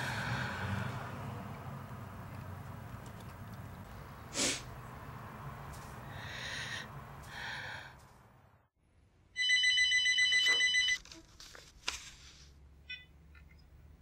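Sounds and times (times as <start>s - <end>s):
electronic telephone ring: 9.4s - 11.0s.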